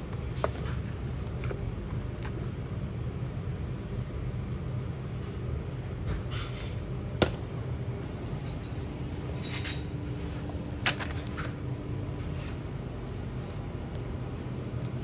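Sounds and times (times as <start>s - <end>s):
low store background hum: 0.0s - 15.0s
plastic wrapper crinkling: 13.2s - 15.0s.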